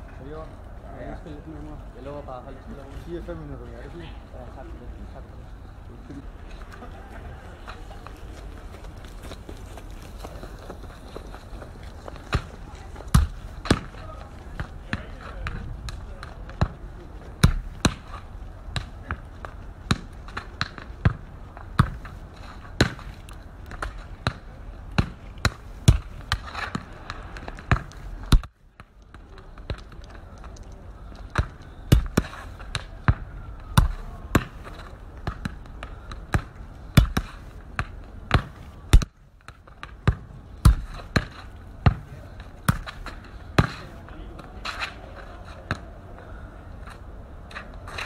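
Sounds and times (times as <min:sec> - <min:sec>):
football thuds from kicks: 0:36.3 - 0:39.1.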